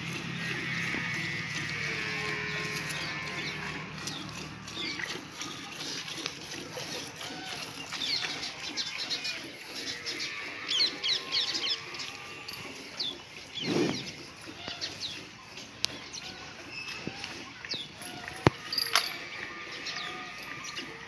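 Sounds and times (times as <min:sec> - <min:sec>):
small birds chirping: 0:07.1 - 0:18.5.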